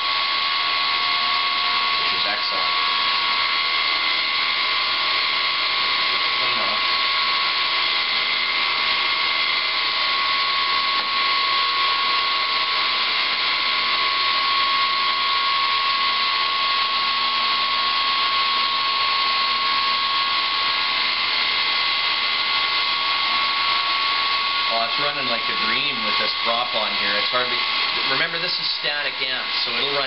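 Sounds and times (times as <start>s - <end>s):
electric motor high whine: 0.0s - 30.0s.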